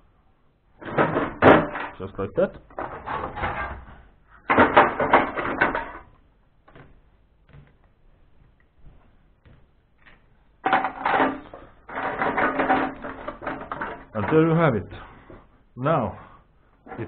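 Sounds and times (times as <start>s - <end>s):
scrap steel clattering into bucket: 0.8s - 2.1s, 2.7s - 6.1s, 10.6s - 14.8s.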